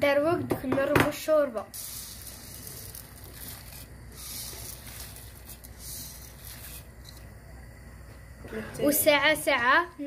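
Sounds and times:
soup boiling and bubbling: 1.7s - 8.5s
dry pasta pattering into pot: 1.8s - 7.3s.

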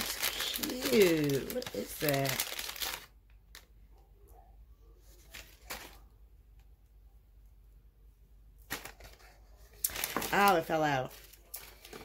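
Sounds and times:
faint handling noises: 3.2s - 7.5s.

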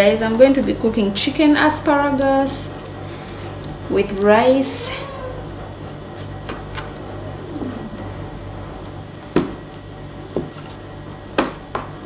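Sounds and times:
low hum: 6.8s - 9.3s.

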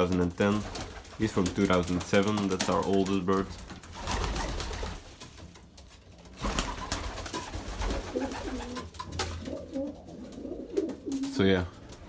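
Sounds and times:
pigeons cooing: 6.8s - 11.3s.

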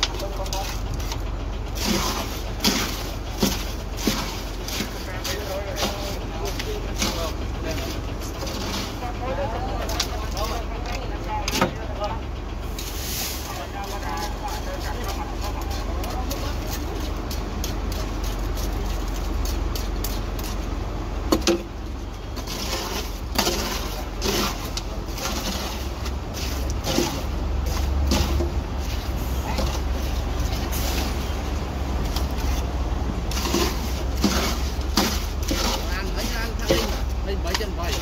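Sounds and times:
tools scraping concrete in wheelbarrow: 0.0s - 11.8s, 12.7s - 38.0s.

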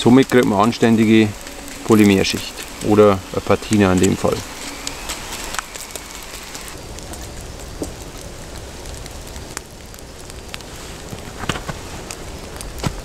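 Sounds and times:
oil sizzling in a pan: 0.0s - 6.8s
fire crackling: 0.0s - 13.0s.

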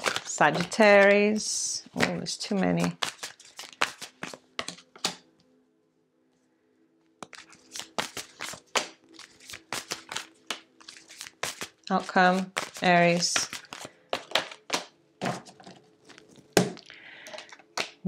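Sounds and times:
faint background music: 0.0s - 3.1s, 7.3s - 14.1s
cards flicking and snapping: 2.8s - 5.2s, 7.2s - 14.9s.

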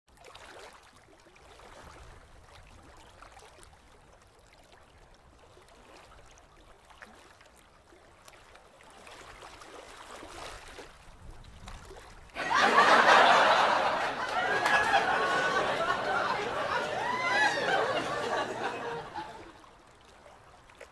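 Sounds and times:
faint water ambience: 0.1s - 20.9s
people laughing and chattering: 12.4s - 19.6s.

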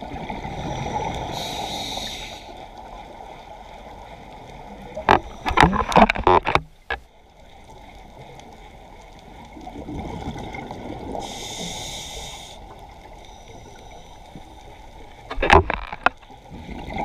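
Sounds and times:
underwater noise: 0.0s - 17.0s
diver's regulator hissing: 0.9s - 2.6s, 11.2s - 12.7s.

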